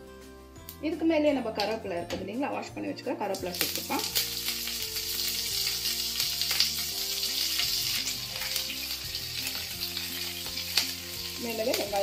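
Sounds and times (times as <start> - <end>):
seeds sizzling in hot oil: 3.3 - 12.0.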